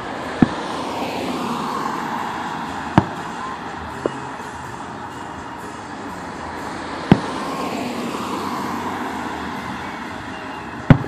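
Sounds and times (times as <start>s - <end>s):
road traffic rushing: 0.0s - 11.0s
firework bang: 3.0s - 3.5s.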